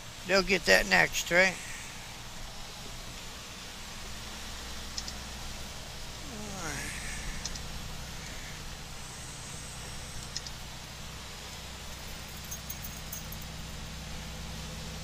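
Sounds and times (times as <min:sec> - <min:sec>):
tyres hissing on wet pavement: 0:00.0 - 0:12.3
truck engine drone: 0:00.0 - 0:15.0
faint clicks and ticks: 0:04.8 - 0:05.3, 0:07.4 - 0:08.4, 0:10.2 - 0:10.6.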